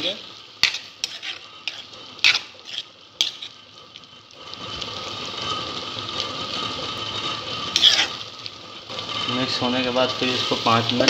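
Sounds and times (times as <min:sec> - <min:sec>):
spoon scraping against pan: 0:00.0 - 0:03.8, 0:06.5 - 0:09.4
tomatoes sizzling: 0:00.0 - 0:11.0.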